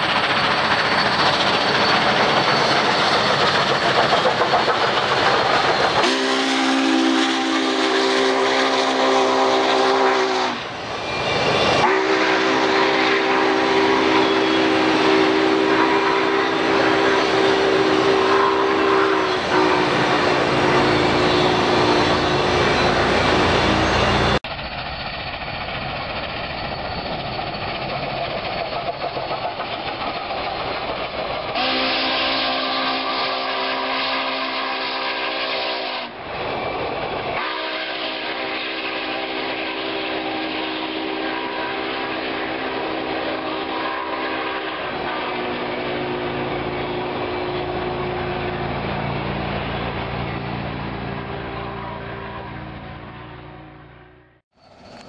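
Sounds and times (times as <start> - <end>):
rumble of train cars: 0.0 - 55.0
steam train rolling past: 0.0 - 55.0
steam whistle blowing: 6.0 - 24.4, 31.6 - 36.2, 37.4 - 48.7, 51.0 - 54.4.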